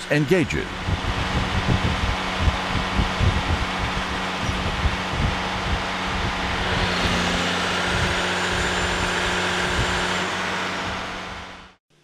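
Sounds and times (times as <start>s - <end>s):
hydraulic power unit humming: 0.0s - 11.8s.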